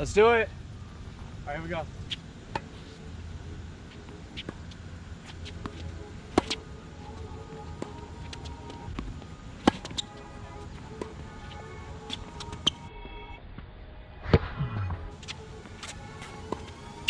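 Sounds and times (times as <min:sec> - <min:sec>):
faint background music: 0:00.0 - 0:17.0
tennis balls struck and bouncing: 0:02.5 - 0:02.8, 0:03.9 - 0:12.9, 0:15.2 - 0:17.0.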